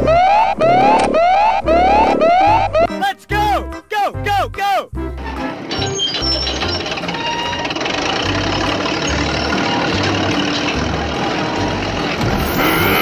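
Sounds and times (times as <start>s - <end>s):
heavy machine engine running: 5.2s - 13.0s.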